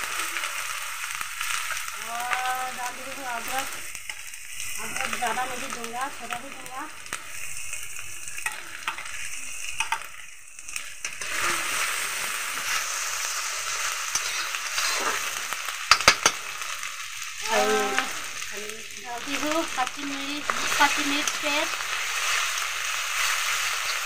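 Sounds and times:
onions sizzling in hot oil: 0:00.0 - 0:24.0
metal spatula stirring: 0:08.3 - 0:10.1, 0:10.8 - 0:11.7, 0:13.6 - 0:16.6.

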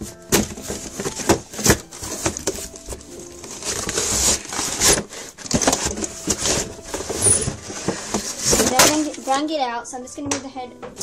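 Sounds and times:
packaging tray sliding out of box: 0:03.4 - 0:09.1.

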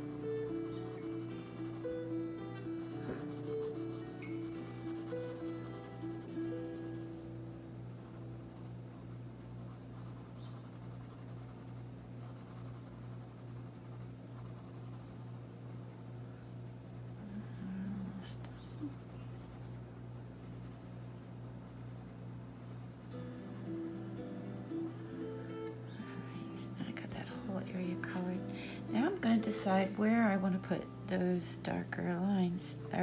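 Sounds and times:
pencil scratching on paper: 0:00.0 - 0:02.1, 0:02.8 - 0:07.1, 0:07.9 - 0:08.7, 0:09.5 - 0:16.1, 0:16.9 - 0:25.0.

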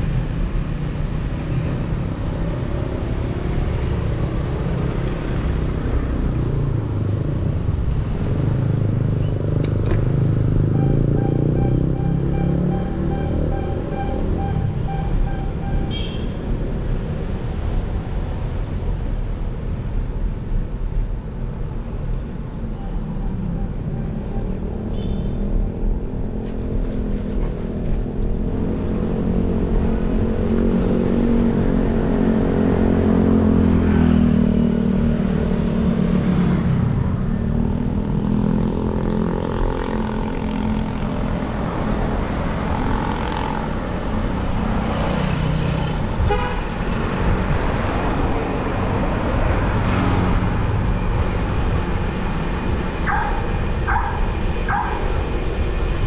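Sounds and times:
low road rumble: 0:00.0 - 0:56.0
car horn toots: 0:10.8 - 0:16.4, 0:46.2 - 0:46.7.

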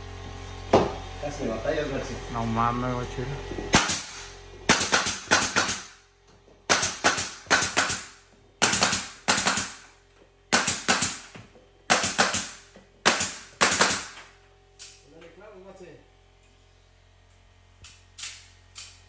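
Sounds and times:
nail gun shots: 0:03.7 - 0:06.0, 0:06.7 - 0:09.9, 0:10.5 - 0:11.3, 0:11.9 - 0:14.3.

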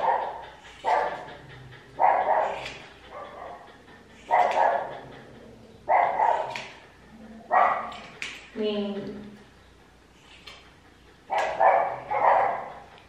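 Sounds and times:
small dog barking aggressively: 0:02.0 - 0:03.6, 0:04.3 - 0:04.9, 0:05.9 - 0:06.7, 0:07.5 - 0:08.0, 0:11.3 - 0:12.8.

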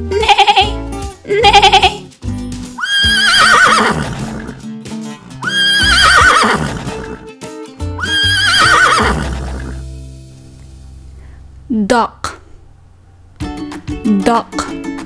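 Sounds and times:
background music: 0:00.0 - 0:15.0
horse whinnying: 0:02.8 - 0:04.6, 0:05.4 - 0:07.2, 0:08.0 - 0:09.8.

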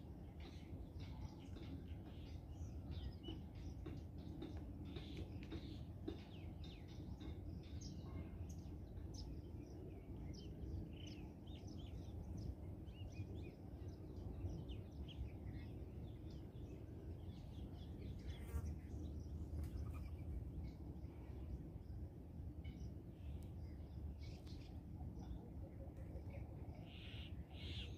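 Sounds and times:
low background rumble: 0:00.0 - 0:27.7
small birds chirping: 0:00.1 - 0:22.0.

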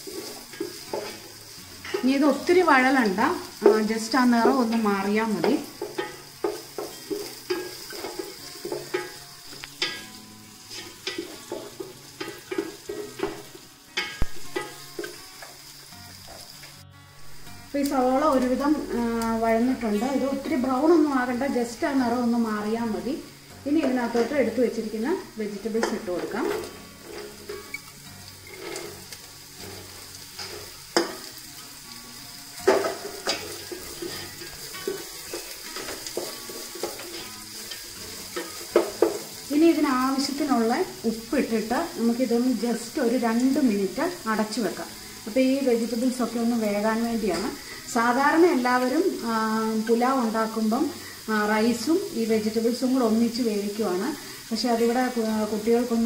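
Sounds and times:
onions sizzling in oil: 0:00.0 - 0:56.0
wooden spatula scraping pot: 0:25.8 - 0:31.1.

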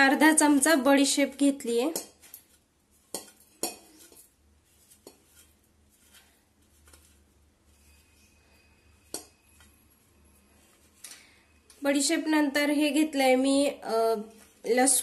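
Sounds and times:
steel dishes clinking: 0:01.9 - 0:04.4.

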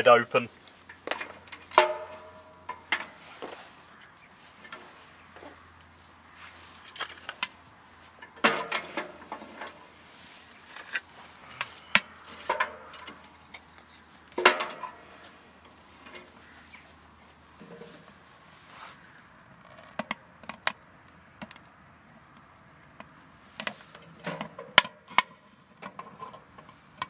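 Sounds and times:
firewood knocking and clattering: 0:00.6 - 0:05.6, 0:06.8 - 0:09.8, 0:11.6 - 0:15.0
wood clunking against metal stove: 0:00.9 - 0:03.6, 0:14.4 - 0:15.0.

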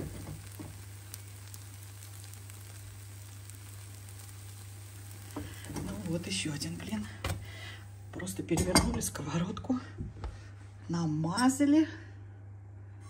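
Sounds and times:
pancake sizzling in frying pan: 0:00.0 - 0:08.9.

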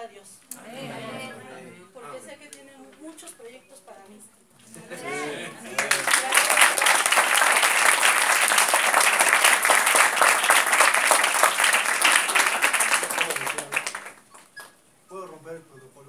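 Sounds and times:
people applauding: 0:05.0 - 0:14.7.

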